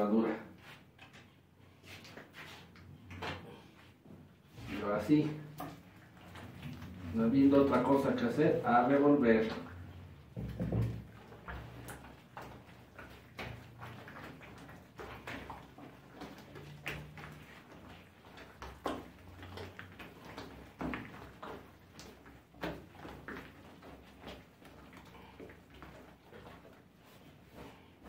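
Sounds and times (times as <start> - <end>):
dough knocking: 9.5 - 24.5.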